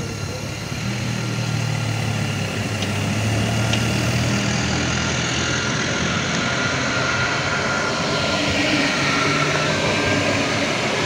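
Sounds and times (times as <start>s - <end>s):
electric train humming: 0.0s - 11.0s.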